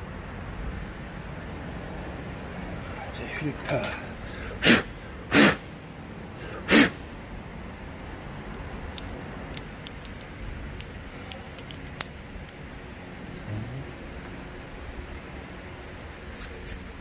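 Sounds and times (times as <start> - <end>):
compressed air blasts: 4.4 - 5.8, 6.4 - 7.0
parts clicking: 8.1 - 12.6.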